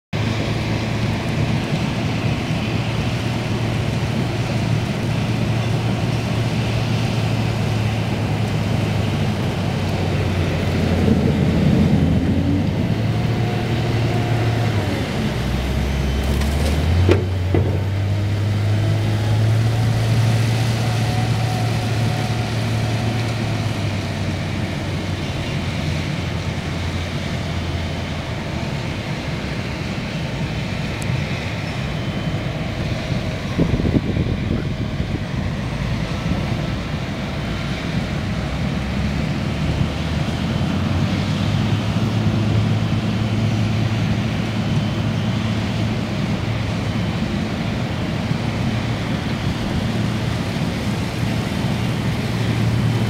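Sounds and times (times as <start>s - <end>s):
diesel engine running: 0.2s - 53.0s.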